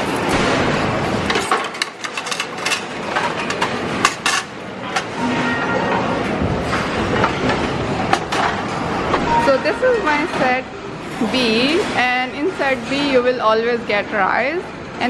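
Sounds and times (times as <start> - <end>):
dining hall background noise: 0.0 - 15.0
trays and cutlery clinking: 1.2 - 8.9.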